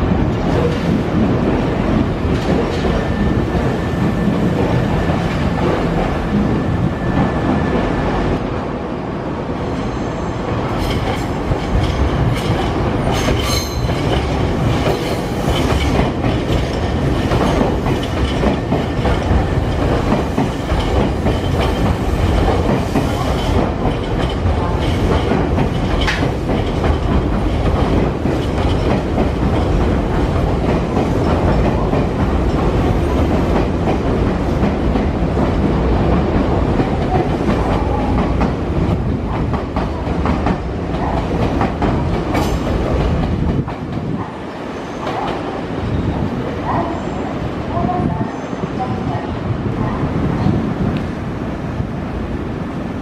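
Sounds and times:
train rumble: 0.0 - 53.0
train wheels clacking: 10.7 - 44.2.

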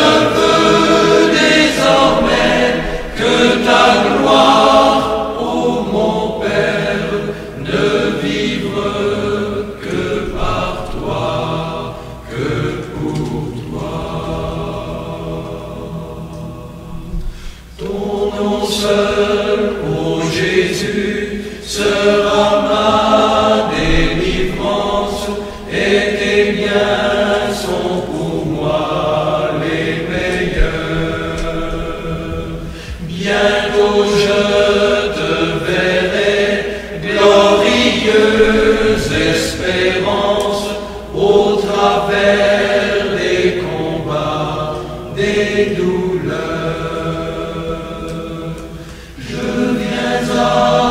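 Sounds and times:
group of voices chanting: 0.0 - 16.8, 17.8 - 50.9.

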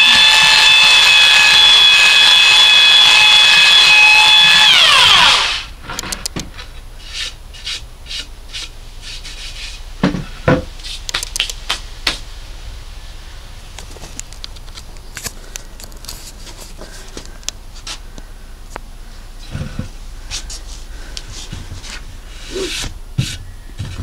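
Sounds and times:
belt sander running: 0.0 - 5.7.

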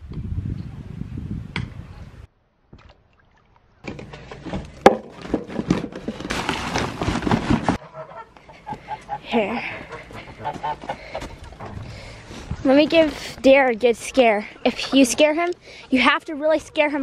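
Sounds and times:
paper sack rustling: 4.0 - 7.8.

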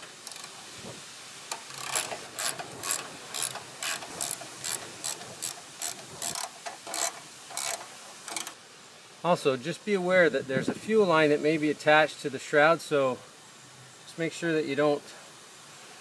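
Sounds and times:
ratchet wrench clicking: 0.2 - 0.5, 1.5 - 8.6.

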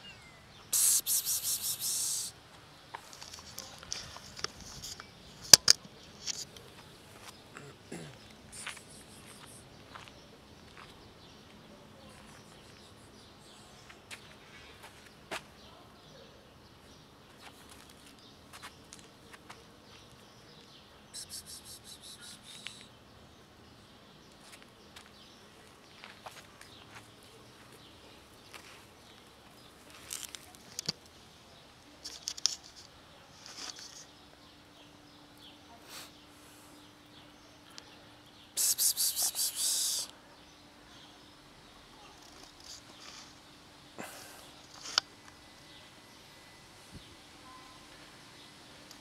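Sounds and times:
faint outdoor ambience: 0.0 - 49.0
person hissing psst: 0.7 - 2.4, 7.6 - 9.7, 21.2 - 22.9, 38.6 - 40.1.

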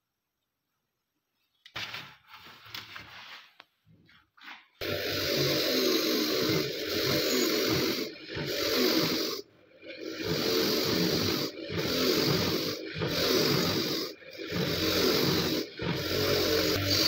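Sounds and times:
wire wheel grinding rust off metal: 4.9 - 17.0.

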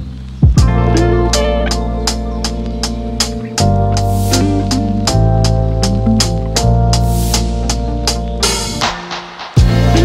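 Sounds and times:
strong kick drum: 0.4 - 0.8, 9.6 - 10.0
background music with drum beat: 0.4 - 10.0.

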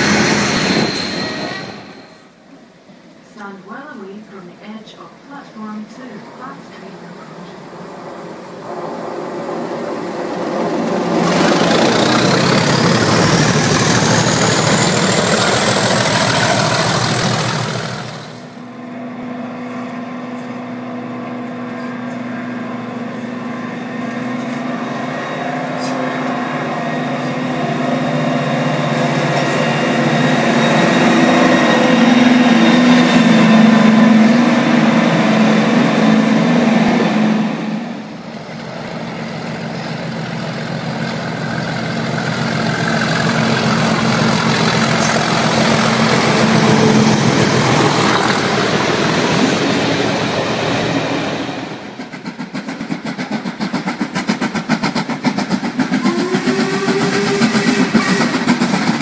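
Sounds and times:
diesel locomotive droning: 0.0 - 59.0
train approaching with a rush: 0.0 - 59.0
steam locomotive exhaust beats: 8.7 - 59.0.

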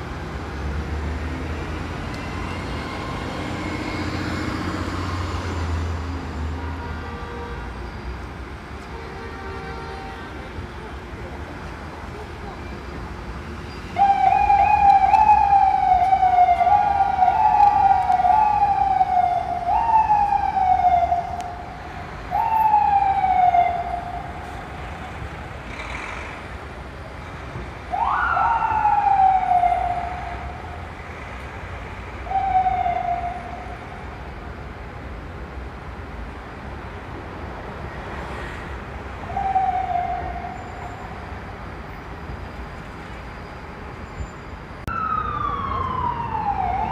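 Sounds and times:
city traffic hum: 0.0 - 46.9
ambulance siren: 1.2 - 6.7, 13.8 - 25.2, 27.8 - 31.1, 31.9 - 34.1, 39.2 - 41.5, 44.8 - 46.9.

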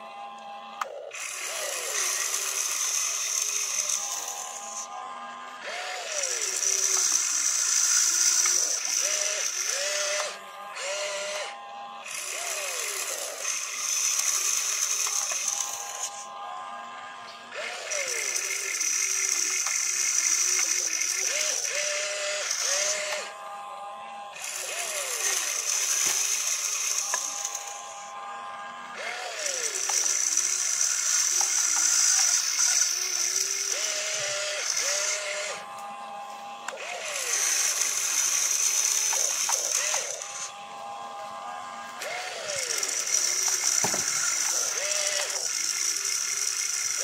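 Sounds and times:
electric motors whining: 0.0 - 47.0
plastic gears rattling: 12.1 - 16.2, 24.4 - 28.0, 29.3 - 35.6, 36.8 - 40.5, 42.5 - 47.0.

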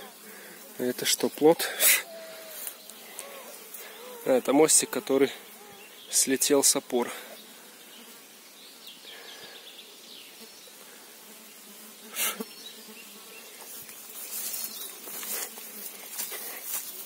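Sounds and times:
grass rustling with movement: 0.0 - 6.9, 12.1 - 17.0
flies buzzing: 0.0 - 17.0
sharp rustle: 13.6 - 17.0.

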